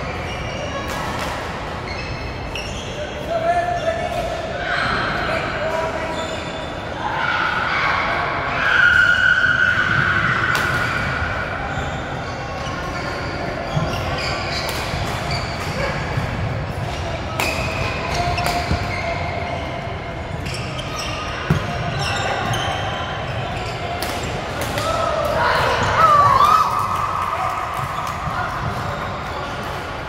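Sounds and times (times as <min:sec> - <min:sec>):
shoe squeaks: 0:01.8 - 0:04.0, 0:06.0 - 0:06.9, 0:11.7 - 0:15.9, 0:16.8 - 0:24.4.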